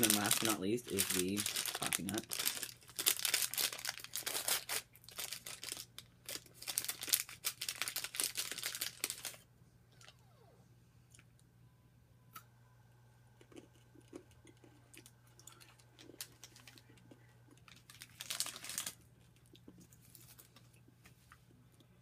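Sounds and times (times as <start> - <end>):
person chewing candy: 0.0 - 9.3, 13.4 - 21.9
packet rustle: 0.0 - 9.4, 15.5 - 19.0.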